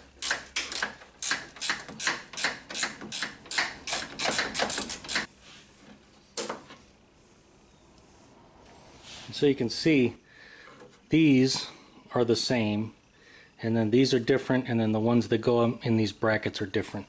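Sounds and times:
ratcheting wrench clicking: 0.1 - 5.3.

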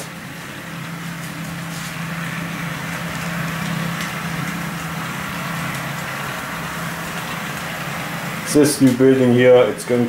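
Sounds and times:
low hum: 0.0 - 10.0.

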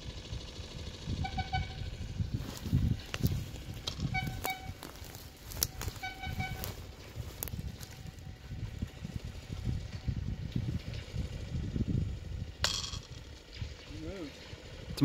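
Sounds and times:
low rumble: 0.0 - 15.0
horn tooting: 1.1 - 2.6, 3.8 - 7.0.

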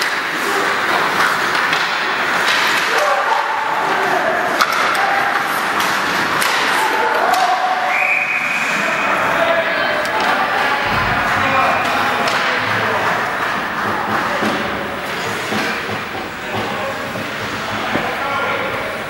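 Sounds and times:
hockey sticks and puck clacking: 0.0 - 7.7, 12.2 - 18.3
crowd voices: 0.0 - 19.0
referee's whistle: 7.9 - 8.8.

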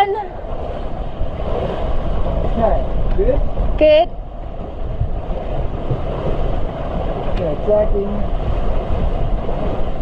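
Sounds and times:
water rushing along hull: 0.0 - 10.0
wind rushing over microphone: 0.0 - 10.0.

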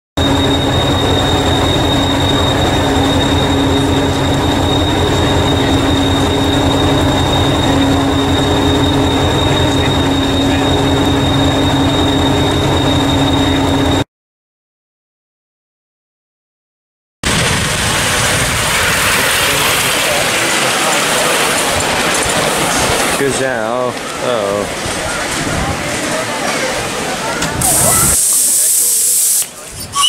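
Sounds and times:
constant hum: 0.2 - 14.0
high whine: 0.2 - 14.0, 17.2 - 30.0.

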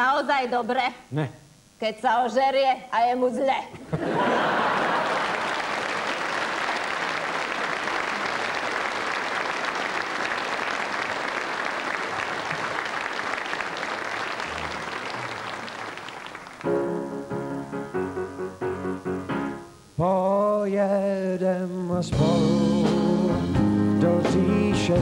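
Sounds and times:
audience applauding: 4.1 - 17.2
band playing: 12.0 - 20.6, 21.9 - 25.0
keyboard chords: 16.6 - 19.9, 22.0 - 25.0.

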